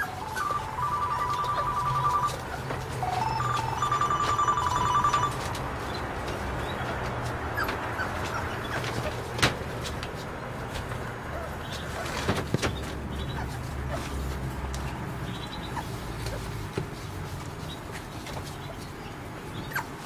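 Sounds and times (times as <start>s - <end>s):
electronic ringer trilling: 0.0s - 5.5s.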